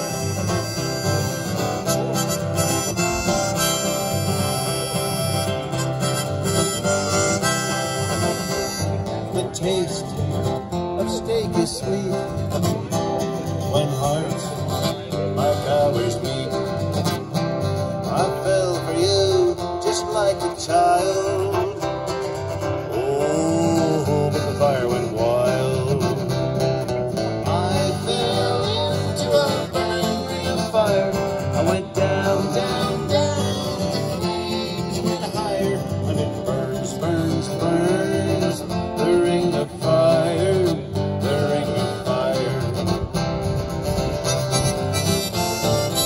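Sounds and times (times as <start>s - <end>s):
acoustic guitars strumming: 0.0s - 46.0s
electric guitar: 0.0s - 46.0s
person singing: 22.9s - 26.3s, 27.4s - 43.1s.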